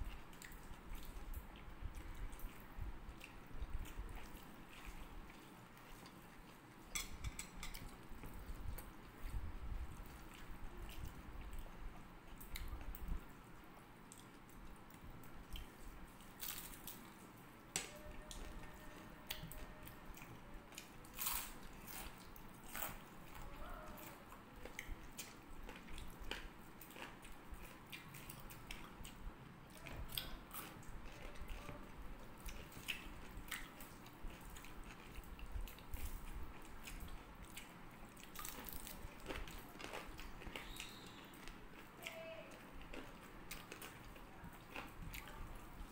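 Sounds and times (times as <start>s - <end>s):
quiet chewing: 0.0s - 45.9s
food crunching: 17.8s - 45.9s.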